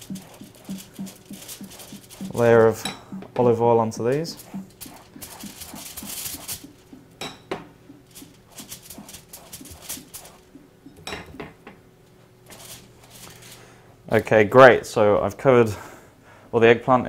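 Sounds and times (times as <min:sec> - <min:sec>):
pastry brush taps and clicks: 0:00.0 - 0:03.5, 0:04.4 - 0:11.6.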